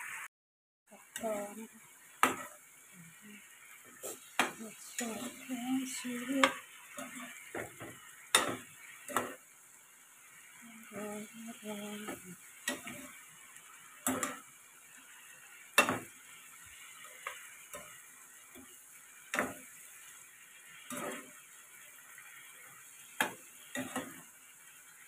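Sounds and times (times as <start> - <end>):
faint frying sizzle: 0.0 - 0.3, 0.9 - 25.0
spatula scraping frying pan: 2.2 - 2.7, 3.8 - 9.5, 12.0 - 24.4.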